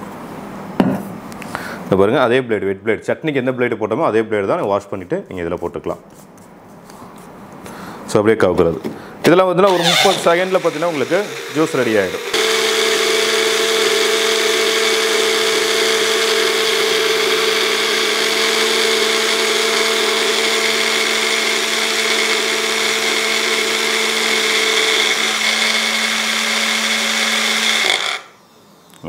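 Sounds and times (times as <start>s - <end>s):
mixer grinder motor whirring: 9.7s - 28.4s.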